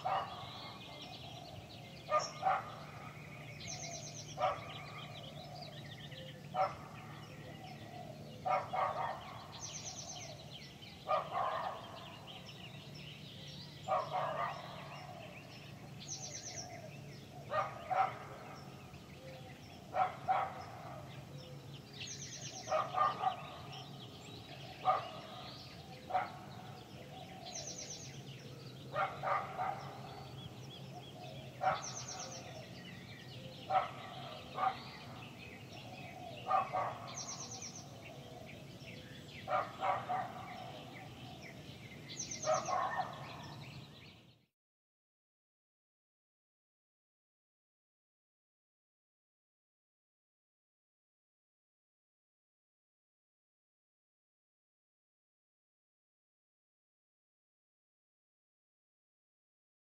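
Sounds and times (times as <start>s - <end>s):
dogs barking: 0.0s - 1.3s, 2.1s - 3.2s, 4.3s - 5.2s, 6.5s - 7.2s, 8.4s - 10.0s, 11.0s - 12.3s, 13.8s - 15.3s, 17.4s - 18.7s, 19.9s - 21.1s, 22.1s - 24.0s, 24.8s - 26.9s, 28.9s - 30.4s, 31.5s - 32.5s, 33.5s - 37.9s, 39.4s - 41.0s, 42.2s - 43.6s.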